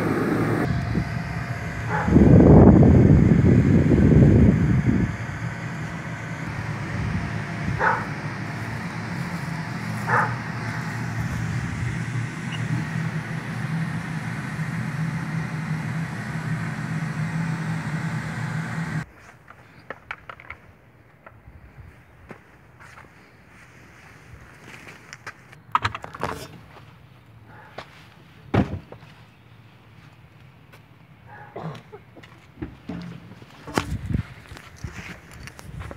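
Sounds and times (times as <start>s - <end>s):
electric blower humming: 0.0s - 19.1s
dog barking: 1.9s - 2.2s, 7.8s - 8.1s, 10.1s - 10.4s, 31.3s - 31.8s.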